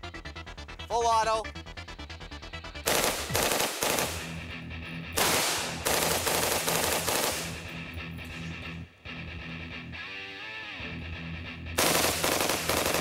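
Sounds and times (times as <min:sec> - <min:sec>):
background music: 0:00.0 - 0:13.0
rifle firing automatic bursts: 0:02.8 - 0:04.4, 0:05.2 - 0:07.7, 0:11.8 - 0:13.0.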